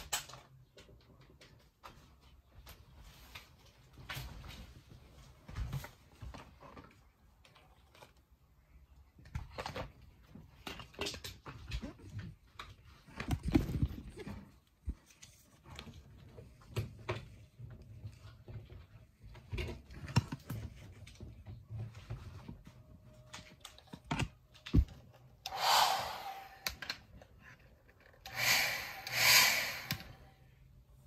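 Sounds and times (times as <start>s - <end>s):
hissing bursts: 25.5s - 26.8s, 28.3s - 30.2s.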